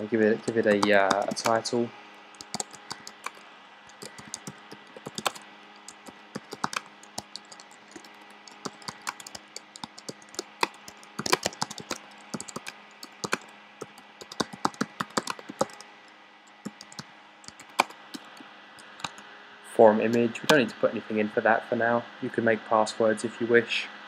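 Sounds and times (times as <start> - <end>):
faint steady hum: 0.0 - 24.0
typing on computer keyboard: 0.4 - 1.7, 2.3 - 15.8, 16.5 - 19.2.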